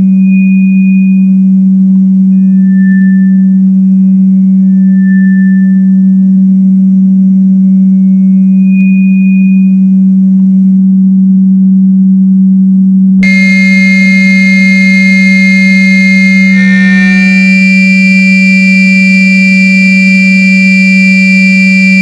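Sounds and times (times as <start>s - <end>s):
low electronic sine drone: 0.0s - 22.0s
faint high tone: 13.2s - 19.1s
cluster of high electronic tones: 13.2s - 22.0s.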